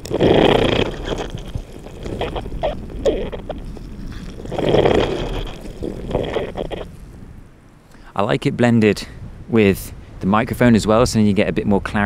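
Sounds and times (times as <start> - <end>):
crackly clicks: 0.0 - 7.0
wet squelches of boggy ground: 0.0 - 8.2.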